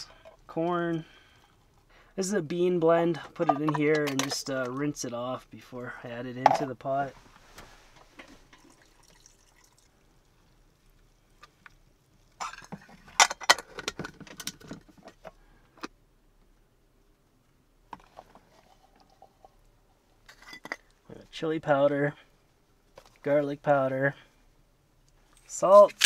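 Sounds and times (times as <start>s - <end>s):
handling sounds: 25.3s - 26.0s.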